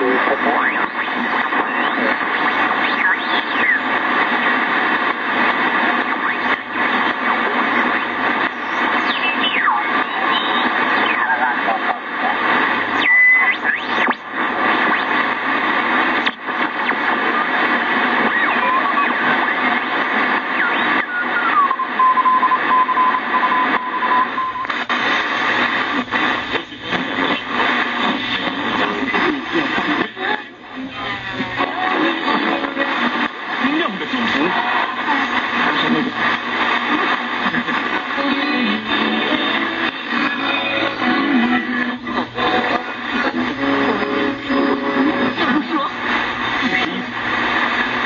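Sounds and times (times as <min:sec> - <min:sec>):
radio whistle tone: 0:00.0 - 0:30.2
shortwave radio static hissing: 0:00.0 - 0:48.0.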